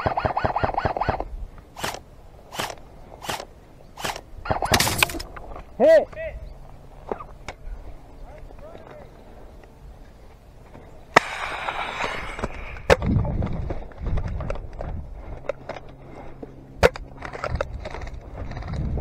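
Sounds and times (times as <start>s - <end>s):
sharp cracks: 0.0s - 5.4s, 11.1s - 13.2s.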